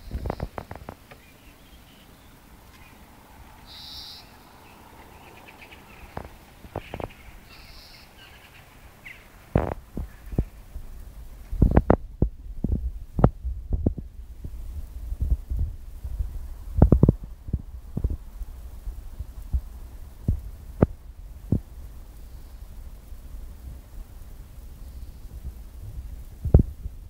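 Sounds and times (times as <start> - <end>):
faint bird calls: 0.0 - 10.7
low thumps on microphone: 11.5 - 18.3, 25.8 - 27.0.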